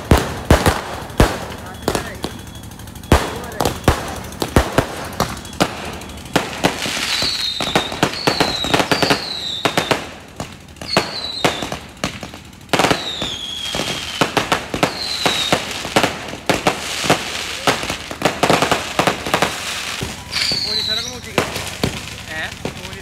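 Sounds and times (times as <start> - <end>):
fireworks bangs and crackling: 0.0 - 23.0
fireworks whistles: 0.0 - 23.0.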